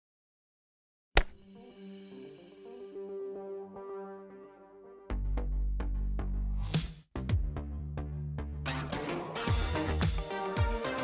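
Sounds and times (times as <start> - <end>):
electronic music with steady beat: 8.7 - 11.0.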